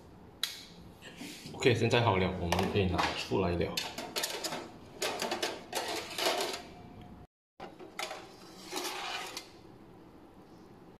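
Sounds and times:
metal baking tray clattering: 2.4s - 6.7s, 7.6s - 9.5s.

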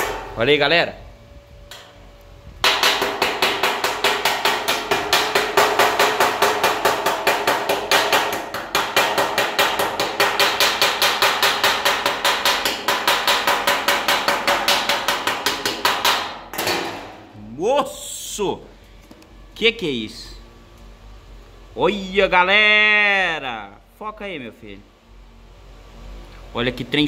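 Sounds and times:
sheet metal ringing: 0.0s - 0.8s.

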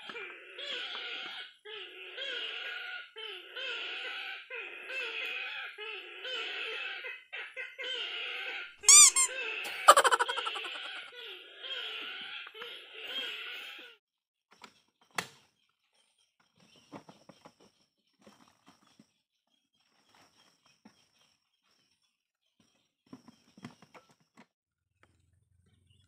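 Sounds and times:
short bird call: 8.9s - 11.1s.

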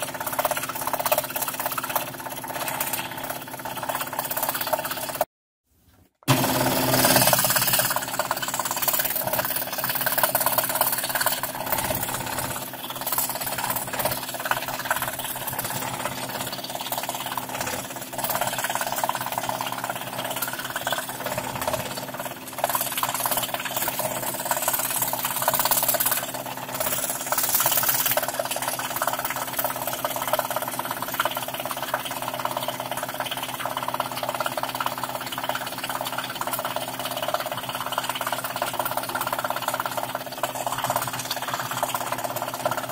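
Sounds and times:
scroll saw cutting wood: 6.2s - 28.4s.

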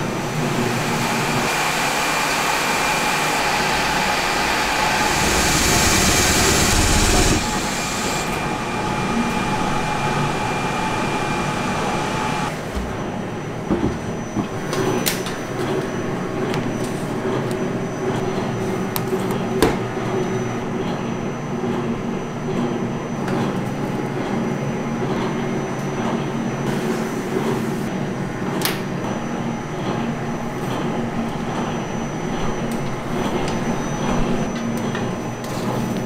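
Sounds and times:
faint high whine: 0.0s - 12.5s
machinery hum: 0.0s - 36.0s.

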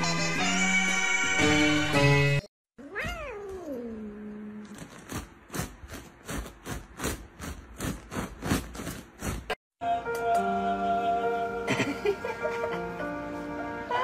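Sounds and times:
cat meowing: 2.8s - 4.0s.

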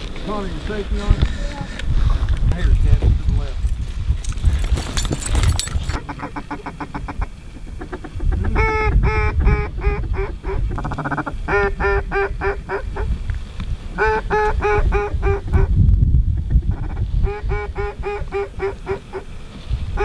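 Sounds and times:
duck quacking: 6.0s - 13.1s, 14.0s - 15.7s, 16.4s - 19.3s.

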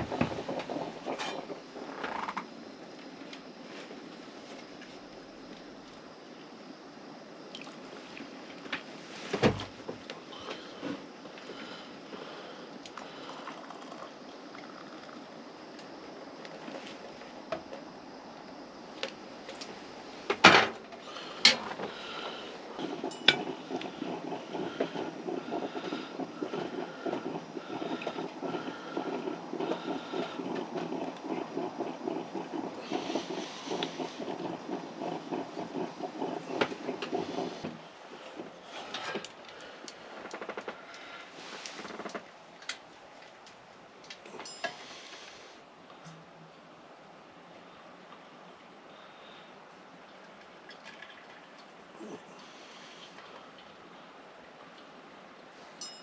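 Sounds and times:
metal coffee pot clanking: 0.0s - 1.5s, 22.8s - 37.0s.

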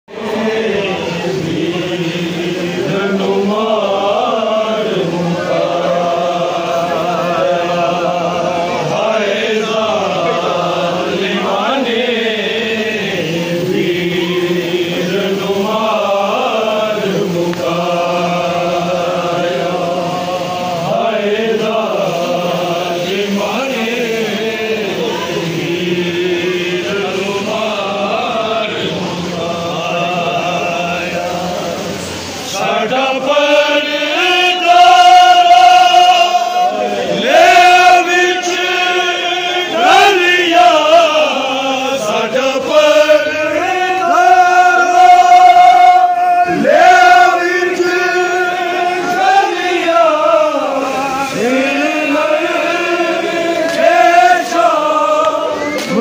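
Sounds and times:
men chanting a lament: 0.1s - 56.0s.

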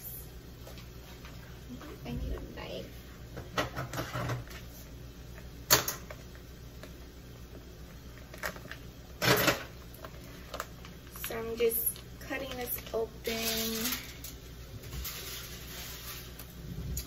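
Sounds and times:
package clicks and crinkles: 8.2s - 8.9s, 9.8s - 12.9s
rustling scrape: 13.3s - 17.0s.

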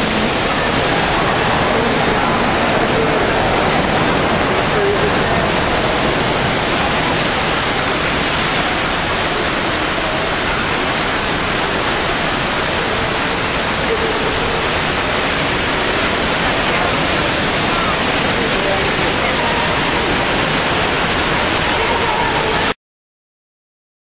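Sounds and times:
fountain water falling: 0.0s - 22.8s
murmur of voices: 0.0s - 22.8s.

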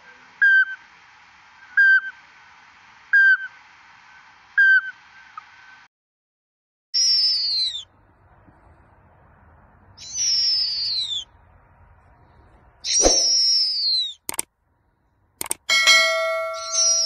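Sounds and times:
owl calling: 0.0s - 1.0s, 1.6s - 2.4s, 3.1s - 5.8s, 7.0s - 8.0s, 10.0s - 11.4s, 12.2s - 14.4s, 16.3s - 17.0s.

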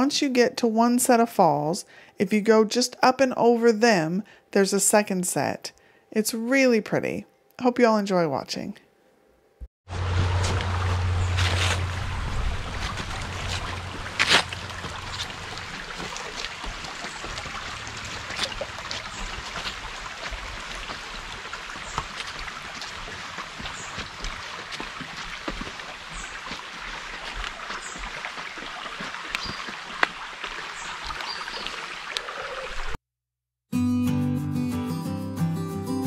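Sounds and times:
stream babbling over stones: 9.9s - 33.0s.

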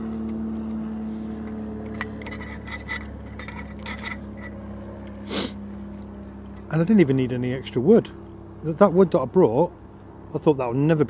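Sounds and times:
steady low drone: 0.0s - 11.0s
utensil clinking on metal plate: 2.0s - 4.6s.

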